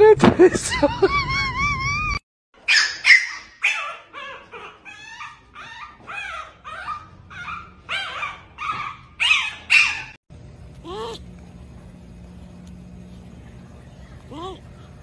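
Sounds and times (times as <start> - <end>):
puppy whimpering and yelping: 2.7 - 10.2.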